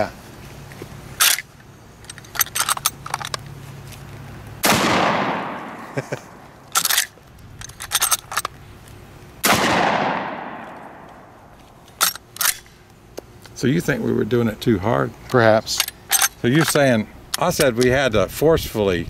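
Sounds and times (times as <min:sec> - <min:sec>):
shotgun shots with echo: 0:04.6 - 0:06.0, 0:09.4 - 0:11.3
lever action metallic clicks: 0:11.9 - 0:12.7.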